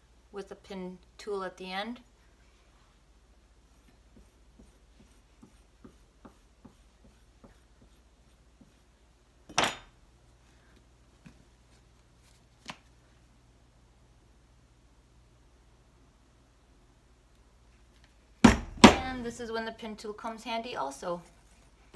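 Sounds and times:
tool scratching soft clay: 0:02.7 - 0:09.1.

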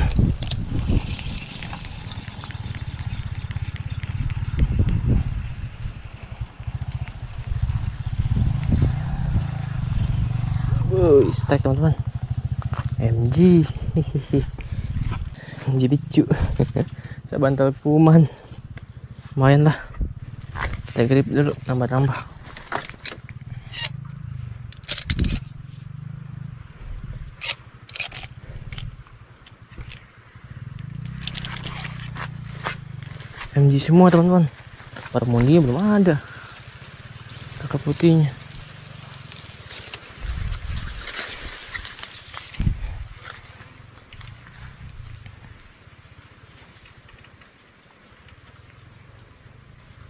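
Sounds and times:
small engine running: 0:00.0 - 0:17.4, 0:22.2 - 0:46.8
handling clicks: 0:24.7 - 0:25.5, 0:27.4 - 0:30.0, 0:30.8 - 0:32.0.

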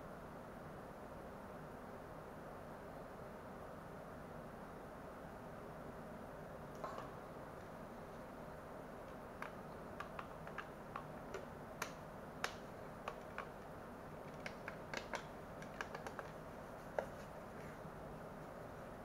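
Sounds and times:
plastic clicks and taps: 0:09.1 - 0:17.2.

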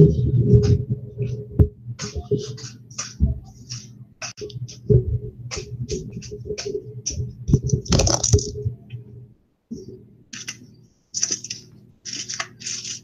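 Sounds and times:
low buzzing hum: 0:00.0 - 0:12.8
scratchy rustles: 0:10.4 - 0:13.0.

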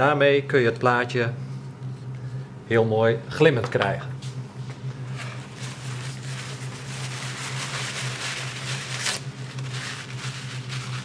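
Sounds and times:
steady low hum: 0:00.0 - 0:11.0
paper towel tearing and rustling: 0:05.0 - 0:11.0.

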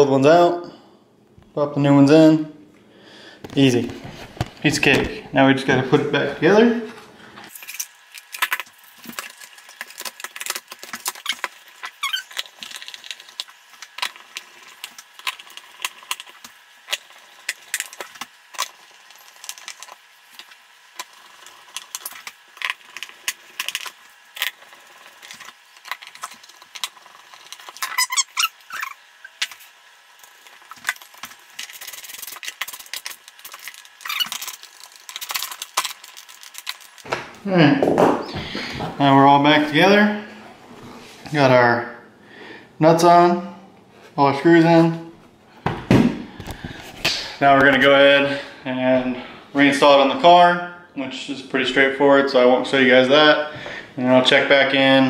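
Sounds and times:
short squeaks: 0:11.2 - 0:12.4, 0:27.8 - 0:29.4.

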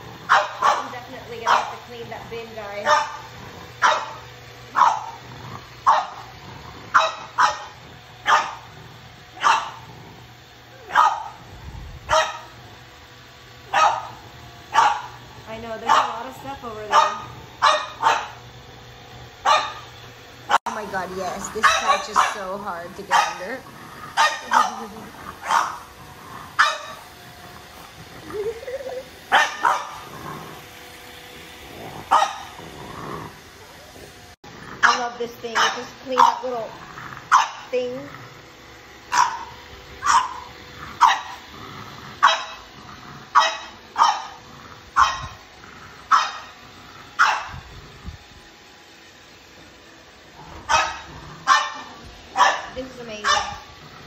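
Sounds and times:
robot vacuum low hum: 0:00.0 - 0:54.0
dog barking: 0:00.3 - 0:01.8, 0:02.8 - 0:05.2, 0:05.8 - 0:06.3, 0:06.9 - 0:08.7, 0:09.4 - 0:09.8, 0:10.8 - 0:11.4, 0:12.1 - 0:12.6, 0:13.7 - 0:15.2, 0:15.8 - 0:16.3, 0:16.9 - 0:18.4, 0:19.4 - 0:19.8, 0:21.6 - 0:22.5, 0:23.1 - 0:23.6, 0:24.2 - 0:25.9, 0:26.6 - 0:27.0, 0:29.3 - 0:30.1, 0:32.1 - 0:32.5, 0:34.8 - 0:36.5, 0:37.3 - 0:37.7, 0:39.1 - 0:41.4, 0:42.2 - 0:42.6, 0:43.3 - 0:44.4, 0:45.0 - 0:45.4, 0:46.1 - 0:46.5, 0:47.2 - 0:47.6, 0:50.7 - 0:53.7.

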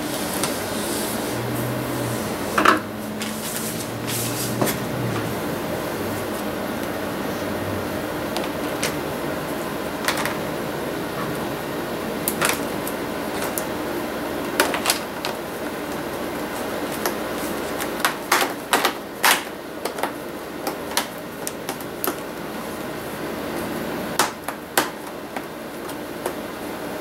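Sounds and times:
steady hum: 0:00.0 - 0:27.0.

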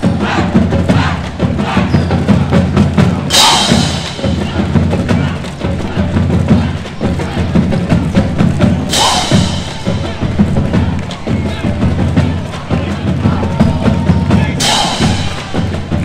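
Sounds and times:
drums: 0:00.0 - 0:16.0
marching band playing: 0:00.0 - 0:16.0
cymbal crashes: 0:03.3 - 0:04.6, 0:14.6 - 0:15.9.

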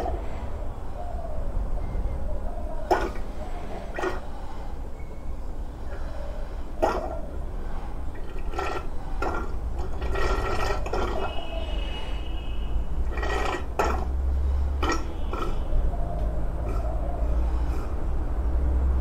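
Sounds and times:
steady low hum: 0:00.0 - 0:19.0
oil pouring and splashing: 0:08.1 - 0:11.4, 0:14.8 - 0:15.6.

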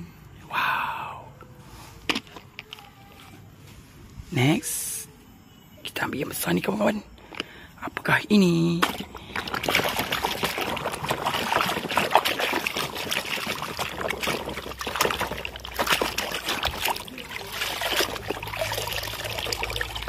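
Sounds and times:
water dripping: 0:08.8 - 0:20.0
water sloshing and splashing: 0:08.8 - 0:20.0.

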